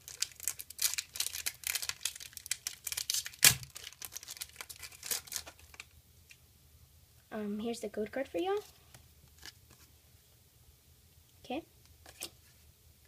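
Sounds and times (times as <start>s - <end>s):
foil ripping: 0.0s - 5.8s
foil wrapper crinkling: 0.0s - 5.9s.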